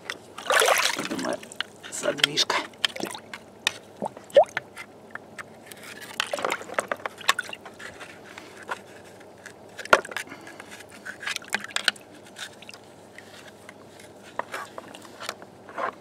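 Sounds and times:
clicks knocks and scrapes: 4.6s - 16.0s.

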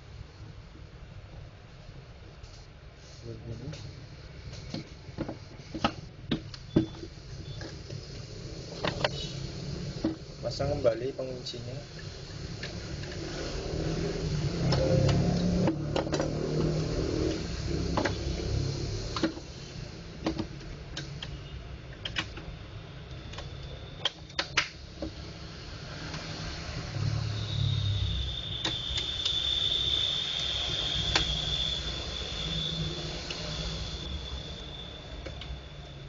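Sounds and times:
high-pitched whine: 0.0s - 36.0s
low hum: 24.8s - 36.0s.

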